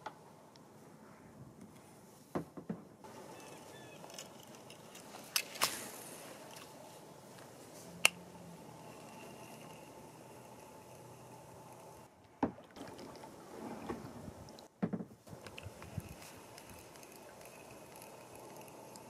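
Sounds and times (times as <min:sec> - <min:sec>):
faint water wash: 0:09.8 - 0:14.7.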